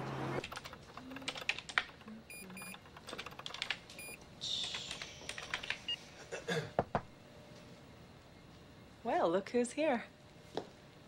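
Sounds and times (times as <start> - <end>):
keyboard typing: 0.4 - 6.0
short electronic beeps: 2.3 - 2.8.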